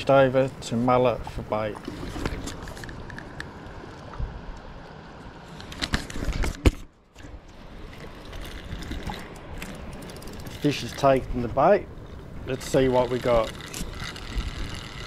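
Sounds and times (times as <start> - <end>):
shallow water: 0.0 - 15.0
reel clicks: 5.5 - 11.3, 12.1 - 15.0
wind noise: 7.9 - 15.0
fishing reel winding: 8.2 - 11.2, 12.5 - 15.0.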